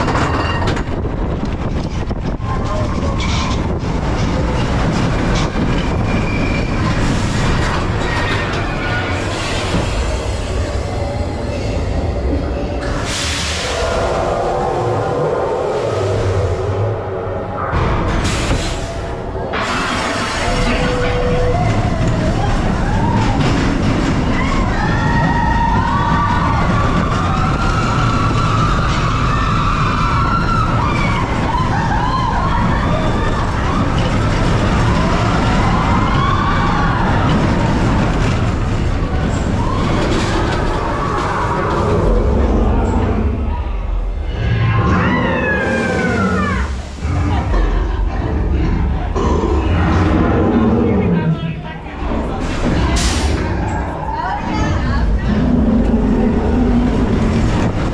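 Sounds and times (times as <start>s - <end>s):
wind noise: 0.0s - 19.3s
roller coaster wheels rumbling: 0.0s - 57.9s.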